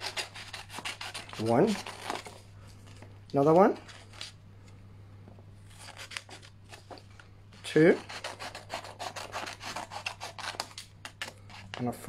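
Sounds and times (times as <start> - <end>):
scissors snipping paper: 0.0 - 2.3, 7.8 - 11.9.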